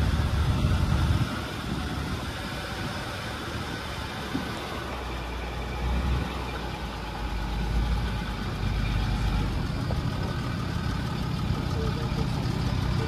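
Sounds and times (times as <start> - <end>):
car engine rumble: 0.0 - 13.0
tyres on gravel: 3.4 - 13.0.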